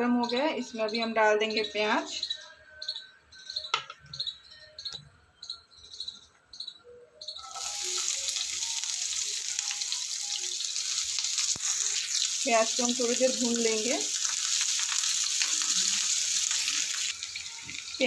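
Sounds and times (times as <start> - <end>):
onion sizzling in hot oil: 7.4 - 18.0.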